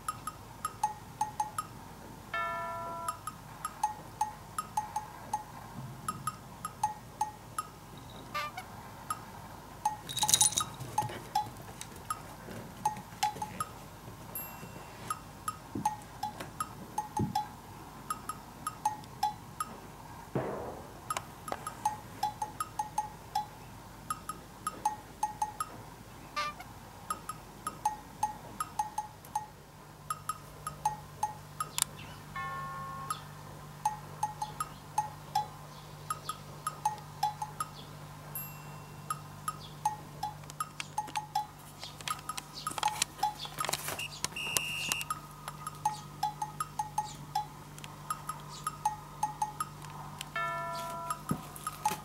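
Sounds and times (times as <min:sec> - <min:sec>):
plinking chime-like tune: 0:02.4 - 0:05.5, 0:14.4 - 0:15.2, 0:32.4 - 0:33.3, 0:38.4 - 0:40.0, 0:50.4 - 0:52.0.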